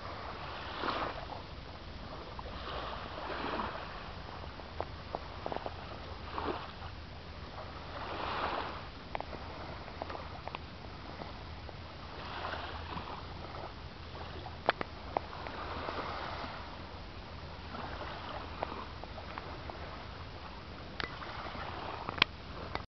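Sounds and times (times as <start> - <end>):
small waves lapping on beach: 0.0 - 22.8.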